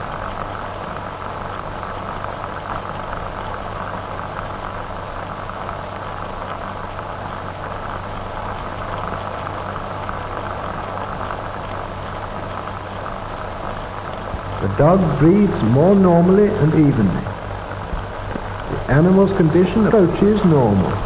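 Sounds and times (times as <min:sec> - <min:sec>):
film soundtrack hiss and crackle: 0:00.0 - 0:21.0
low hum: 0:08.4 - 0:21.0.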